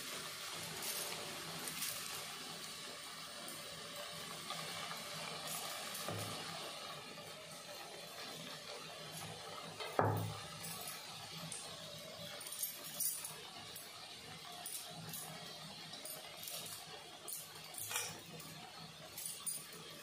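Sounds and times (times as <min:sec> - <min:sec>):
fritters sizzling in hot oil: 0:00.0 - 0:20.0
oil crackling and popping: 0:00.0 - 0:20.0.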